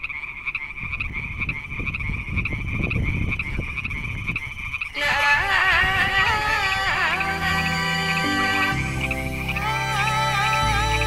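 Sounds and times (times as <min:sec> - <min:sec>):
frogs trilling chorus: 0:00.0 - 0:11.0
music: 0:06.4 - 0:11.0.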